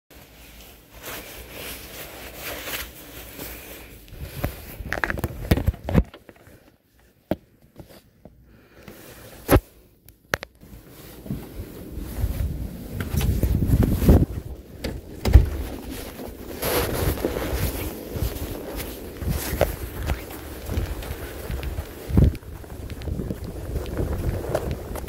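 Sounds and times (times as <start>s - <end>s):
phone rustling against jacket: 0.2s - 25.0s
door opening: 14.8s - 15.8s.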